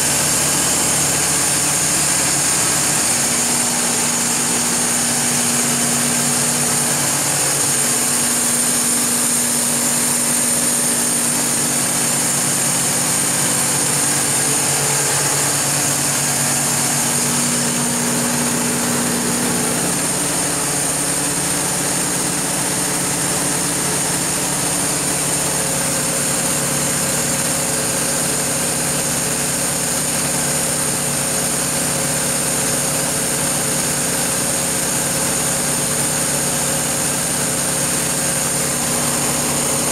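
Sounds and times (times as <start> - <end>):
high-pitched whine: 0.0 - 27.0
diesel generator engine droning: 0.0 - 39.9.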